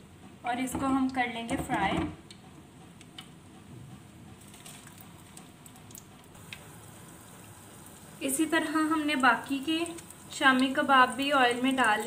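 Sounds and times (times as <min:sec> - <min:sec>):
food sizzling in hot oil: 0:06.4 - 0:12.0.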